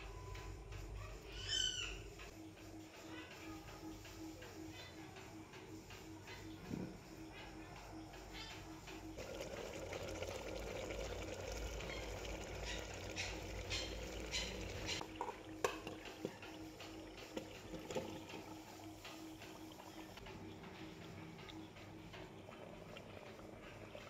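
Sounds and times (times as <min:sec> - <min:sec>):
curry bubbling and sizzling: 0:09.2 - 0:20.2.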